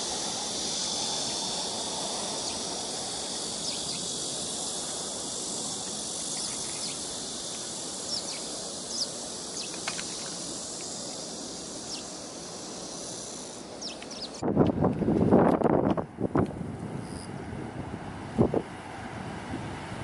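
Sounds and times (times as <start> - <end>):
low steady hiss: 0.0 - 14.5
insects droning: 0.0 - 20.0
bird chirps: 8.0 - 10.0, 11.9 - 12.1, 13.8 - 14.4.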